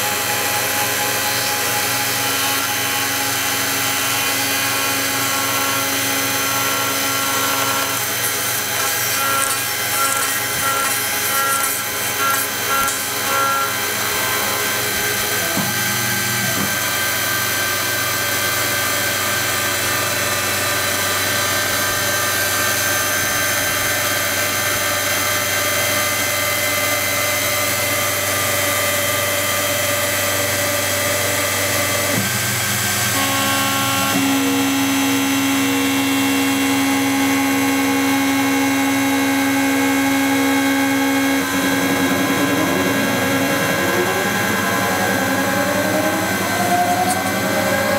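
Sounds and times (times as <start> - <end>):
milling machine whine: 0.0 - 47.9
rising and falling machine tones: 41.0 - 47.9.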